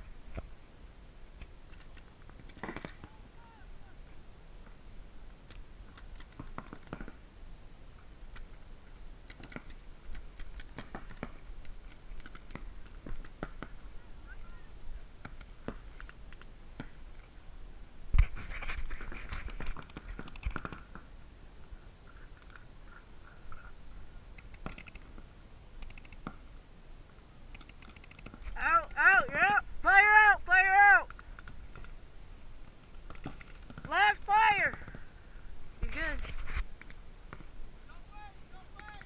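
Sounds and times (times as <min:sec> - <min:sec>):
paintball markers firing: 0:01.7 - 0:03.1, 0:09.2 - 0:13.8, 0:32.8 - 0:35.0, 0:38.8 - 0:39.0.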